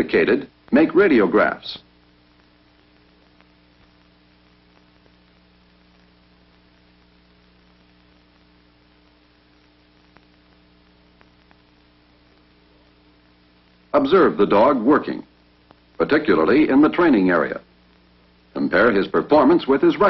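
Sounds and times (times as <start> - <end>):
low electrical hum with hiss: 0.0 - 20.0
faint clicks: 2.4 - 13.9, 15.4 - 16.0.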